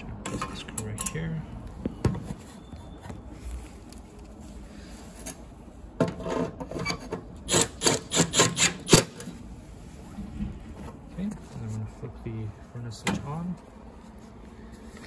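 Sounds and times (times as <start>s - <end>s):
screwdriver scrape: 6.1s - 9.3s
screwdriver turning screw into metal: 7.5s - 9.2s.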